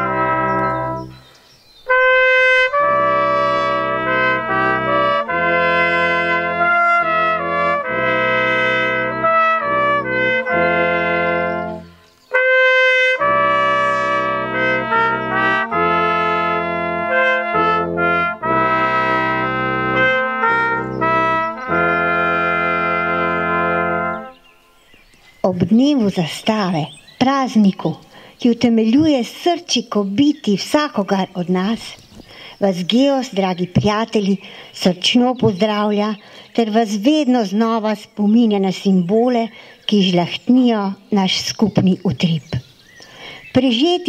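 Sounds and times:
brass quartet playing slow chords: 0.0s - 1.3s, 1.9s - 24.8s.

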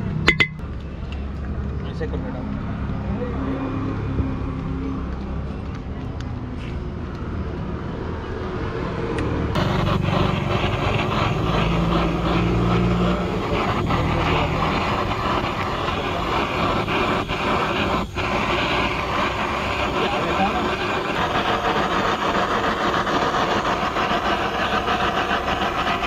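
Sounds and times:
gas blowtorch hissing: 9.2s - 26.0s.

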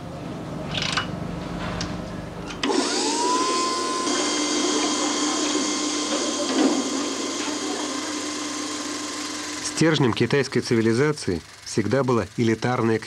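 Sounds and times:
conveyor container whirring: 2.6s - 13.0s
motor whine: 2.6s - 13.0s.

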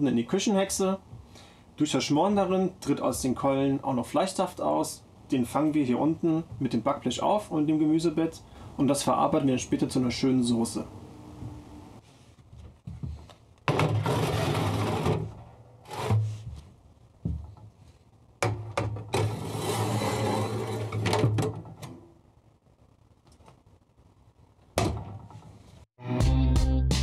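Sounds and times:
metal tray sliding into oven: 19.2s - 21.1s.

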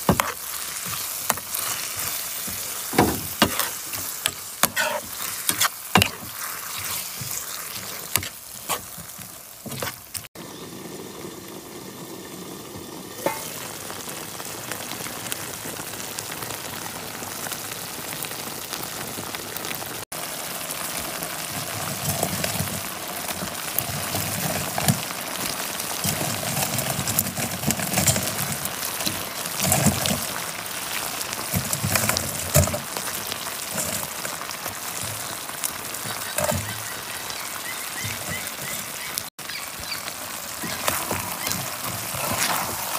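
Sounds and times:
metal spoon stirring in a pan: 0.0s - 10.2s, 13.2s - 13.6s
sauce sizzling and bubbling in a skillet: 0.0s - 42.9s.

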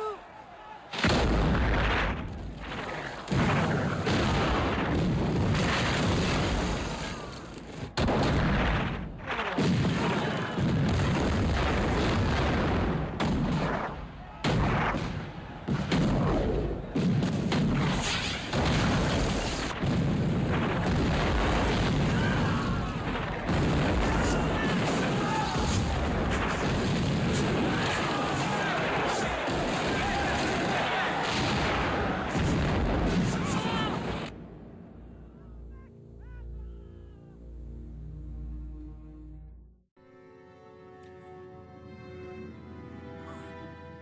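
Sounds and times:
shells bursting: 0.9s - 34.6s
cannon fire blasts: 0.9s - 35.1s.

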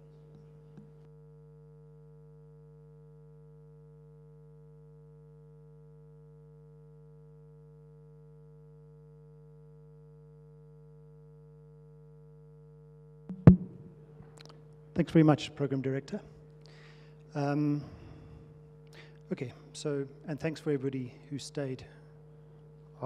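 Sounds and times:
electrical mains hum: 13.3s - 23.0s.

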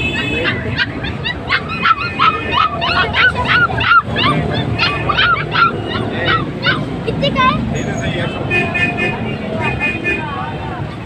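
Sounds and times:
dogs yelping and whimpering: 0.1s - 7.7s.

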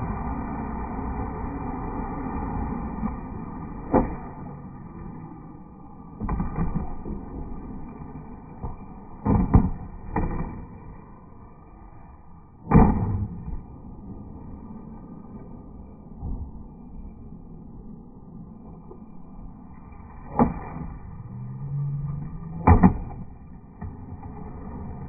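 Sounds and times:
skateboard wheels rolling on concrete: 0.0s - 25.0s.

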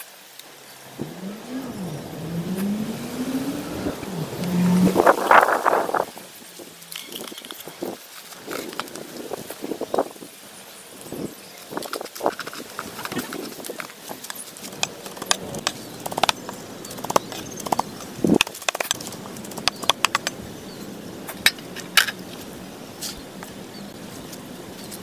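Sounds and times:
steady background hiss: 0.0s - 25.0s.

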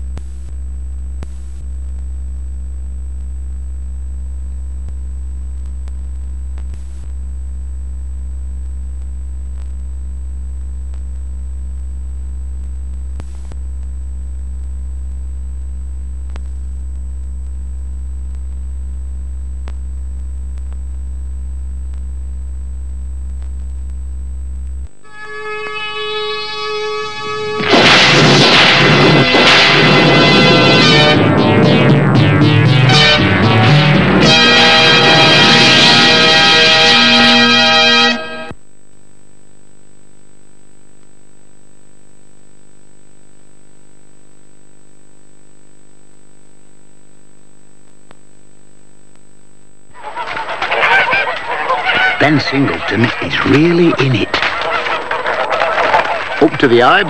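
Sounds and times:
low electrical hum: 0.0s - 25.1s
faint high whine: 23.0s - 38.6s
synthesizer music: 27.3s - 38.5s.

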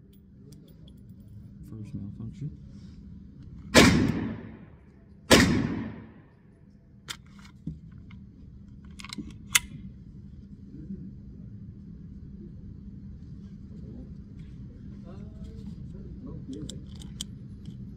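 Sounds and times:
pistol shot echoing: 3.7s - 4.7s, 5.3s - 6.2s
metallic gun handling clicks: 8.8s - 9.8s, 16.5s - 17.8s.

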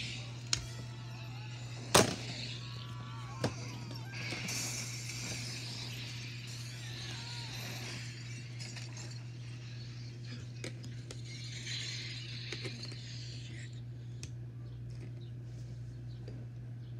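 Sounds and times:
steady low hum: 0.0s - 16.9s.

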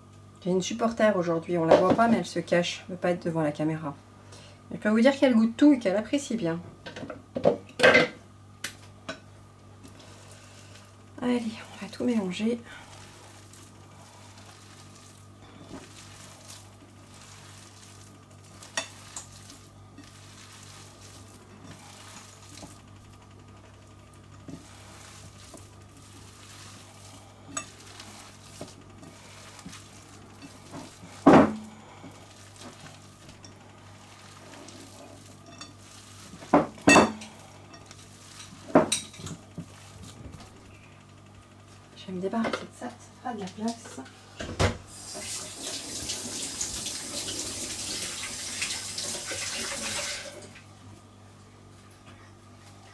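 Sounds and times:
hands kneading minced meat: 9.6s - 41.9s.

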